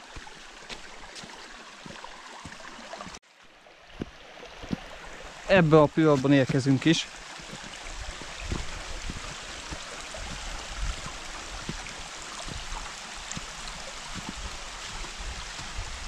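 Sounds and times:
rushing water: 0.0s - 16.0s
low thuds: 8.1s - 11.9s.

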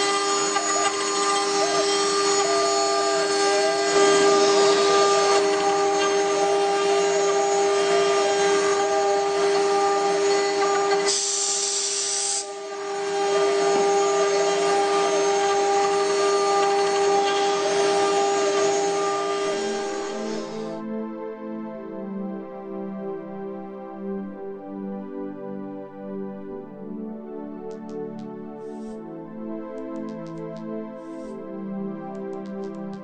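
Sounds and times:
cutter milling wood: 0.0s - 20.8s
router spindle high whine: 0.0s - 20.9s.

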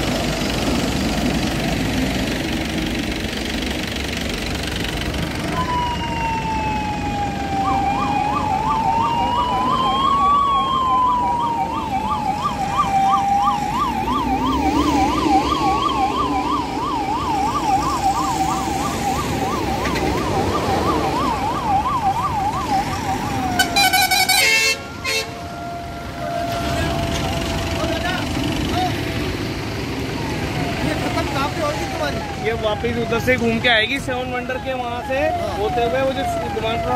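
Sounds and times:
truck engines running: 0.0s - 36.9s
siren yelping: 5.3s - 29.0s, 29.8s - 36.9s
siren wailing: 5.3s - 36.9s
loud horn blast: 23.6s - 25.4s.

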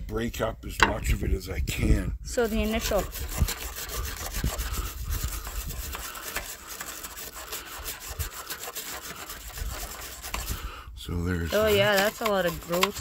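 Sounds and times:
hand tool scraping metal hole: 2.4s - 10.8s, 11.4s - 13.0s.

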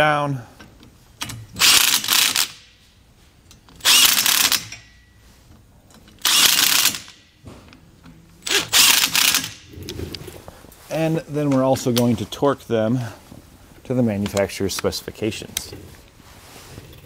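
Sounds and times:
power driver running nuts: 1.6s - 2.6s, 3.7s - 4.8s, 6.1s - 7.2s, 8.4s - 10.2s.

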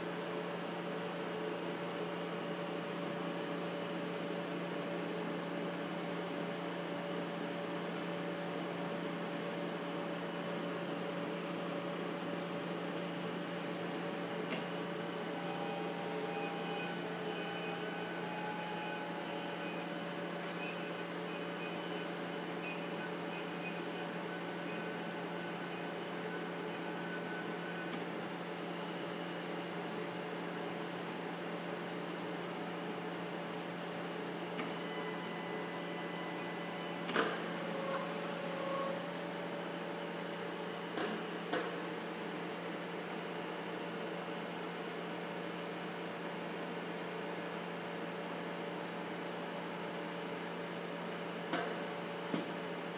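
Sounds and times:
machine hum: 7.6s - 40.8s
faint whining tones: 13.6s - 30.0s, 34.6s - 39.5s.

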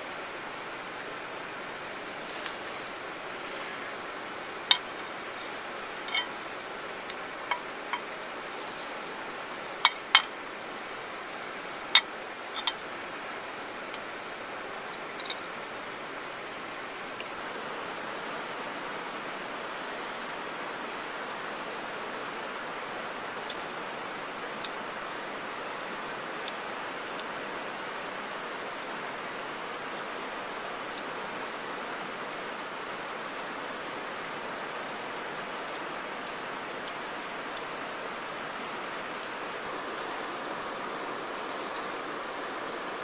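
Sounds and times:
river rushing: 0.0s - 43.0s.

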